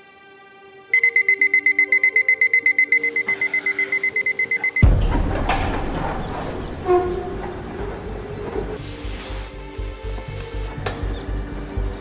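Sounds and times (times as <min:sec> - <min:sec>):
soft music: 0:00.0 - 0:12.0
alarm clock beeping: 0:01.0 - 0:04.9.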